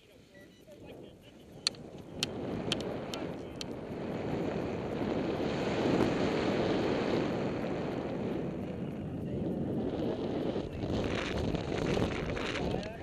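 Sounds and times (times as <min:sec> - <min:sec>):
wind rushing over microphone: 0:00.0 - 0:13.0.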